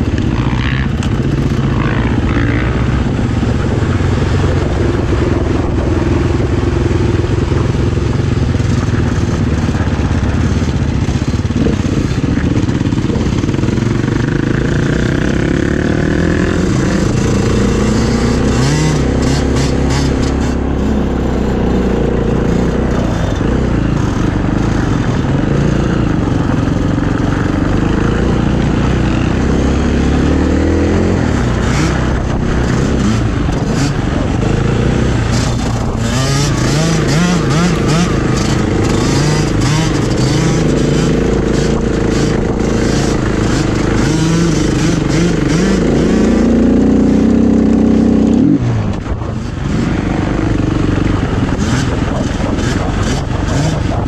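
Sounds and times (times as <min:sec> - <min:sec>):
motorcycle engine revving: 0:00.0 - 0:54.0
sharp clicks and ticks: 0:31.0 - 0:54.0.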